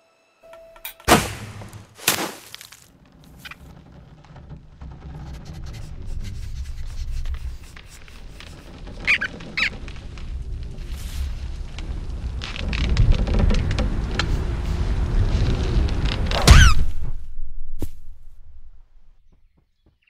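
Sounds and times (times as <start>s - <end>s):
cartoon thud: 1.0s - 2.6s, 16.4s - 17.2s
short high squeaks: 7.9s - 9.8s
low rumble: 9.7s - 19.3s.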